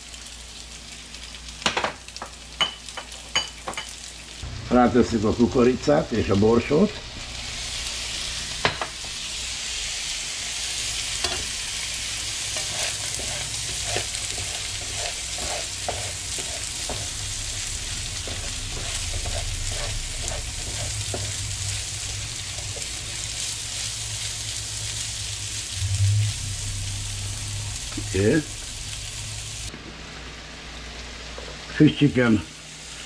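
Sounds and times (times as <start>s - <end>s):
rice sizzling in a hot pan: 0.0s - 33.0s
utensil scraping and clicking on pan: 12.5s - 17.1s.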